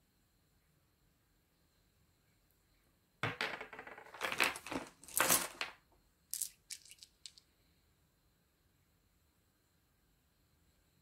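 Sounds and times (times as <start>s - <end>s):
pebbles clicking and clattering: 3.2s - 7.4s.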